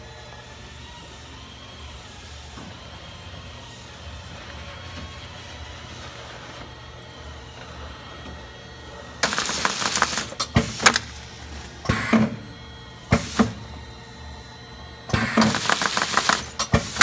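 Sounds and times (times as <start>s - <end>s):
packaging machine humming: 0.0s - 17.0s
machine clacking and rushing: 9.2s - 11.1s, 15.1s - 17.0s.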